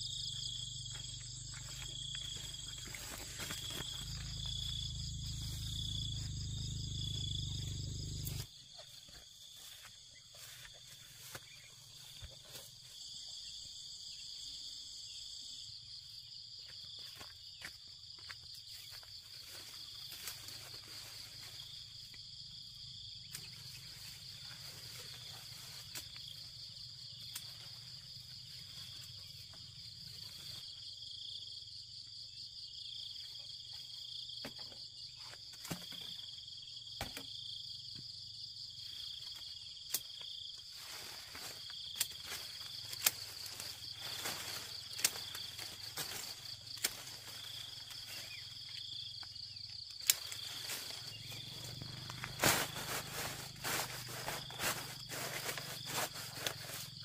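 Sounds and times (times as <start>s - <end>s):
insects buzzing: 0.0s - 57.0s
branches and leaves rustling: 0.9s - 13.2s, 18.2s - 22.6s, 23.2s - 30.8s, 39.2s - 57.0s.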